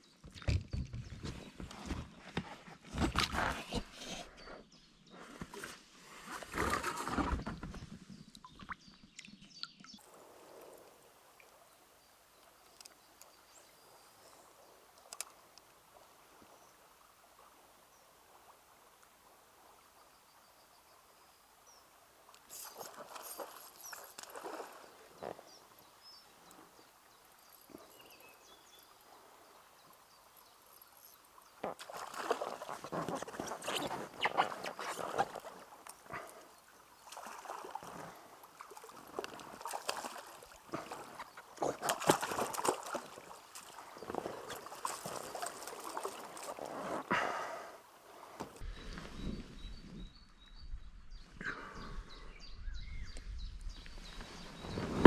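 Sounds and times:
fish splashing in water: 38.6 - 43.9.

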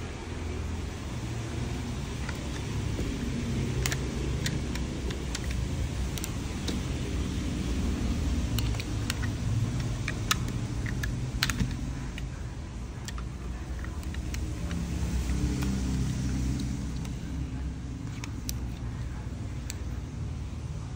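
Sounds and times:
phone handling clicks and taps: 8.4 - 12.4.

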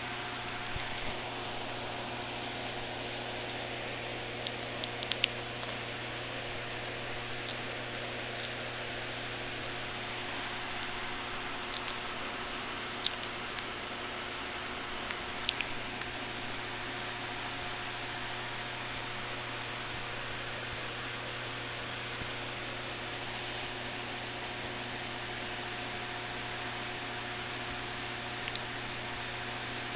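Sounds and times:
constant hiss: 0.0 - 29.9
electrical hum: 0.0 - 29.9
tiny high clicks: 4.4 - 5.8, 11.6 - 12.1, 15.0 - 16.1.

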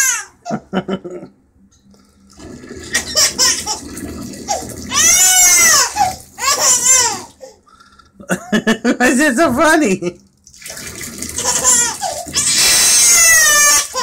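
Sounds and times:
water pouring into bath: 2.1 - 7.4, 10.2 - 14.0
toddler laughing squeals: 3.0 - 3.8, 4.5 - 7.4, 11.4 - 14.0.

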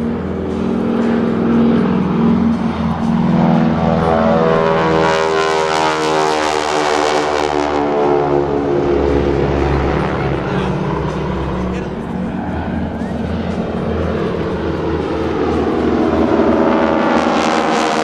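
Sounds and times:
propeller planes flying overhead: 0.0 - 18.0.

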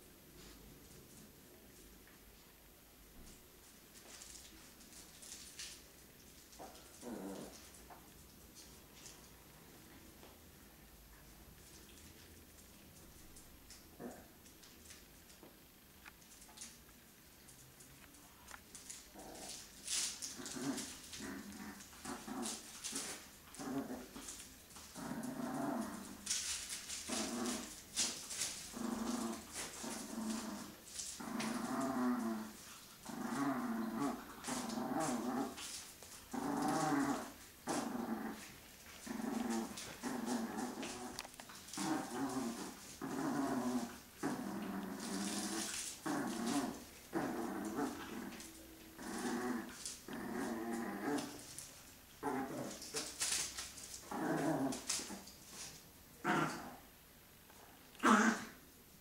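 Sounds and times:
puppies growling: 6.5 - 7.9, 18.8 - 56.9.

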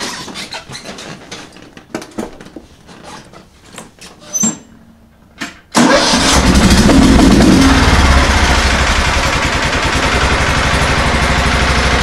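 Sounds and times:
brief squeak: 4.2 - 4.7
mower engine running loudly: 5.8 - 12.0.

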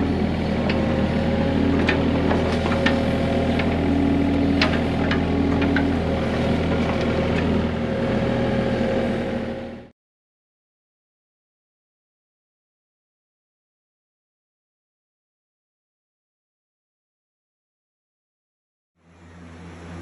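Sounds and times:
excavator diesel engine running: 0.0 - 9.9, 19.0 - 20.0.

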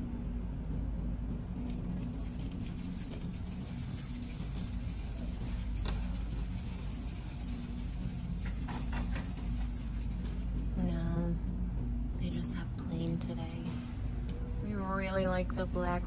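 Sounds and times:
shopping cart wheels rumbling: 1.5 - 10.8.

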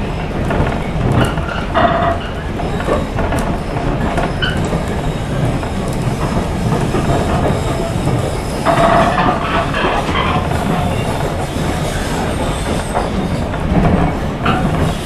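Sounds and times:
train wheels rumbling on rails: 0.0 - 15.0
train wheels squealing: 1.3 - 5.8, 6.9 - 15.0.

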